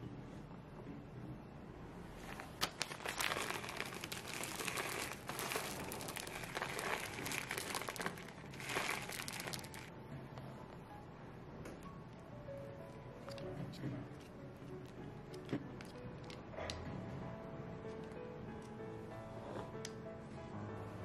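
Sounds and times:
plastic bag crinkling: 0:02.2 - 0:09.9.

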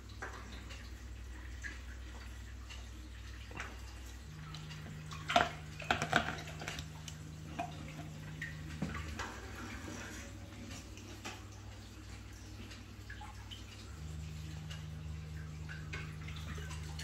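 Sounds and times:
aquarium equipment humming: 0:00.0 - 0:17.0
faint trickling water: 0:00.0 - 0:17.0.

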